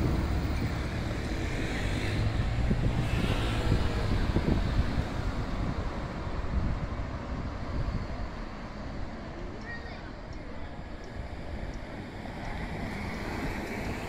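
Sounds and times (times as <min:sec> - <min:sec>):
car passing by: 0:00.0 - 0:08.3
low rumble of street traffic: 0:00.0 - 0:14.0.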